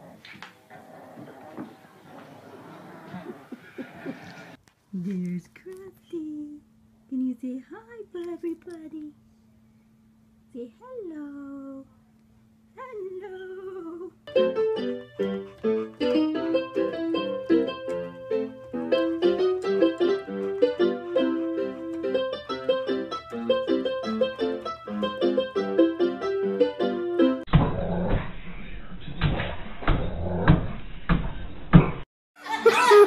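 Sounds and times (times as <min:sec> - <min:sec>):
busy piano music: 0:14.3 - 0:27.5.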